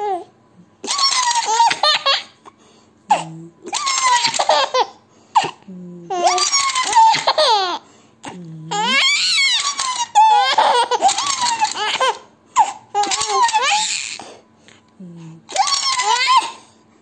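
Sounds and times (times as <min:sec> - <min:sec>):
baby laughing: 0:00.8 - 0:02.4, 0:03.1 - 0:07.8, 0:08.7 - 0:14.2, 0:15.5 - 0:16.6.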